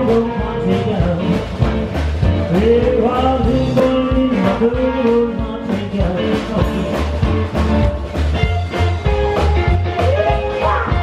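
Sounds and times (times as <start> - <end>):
man singing: 0.0 - 8.2
drum kit: 0.0 - 11.0
electric guitar: 0.0 - 11.0
upright double bass: 0.0 - 11.0.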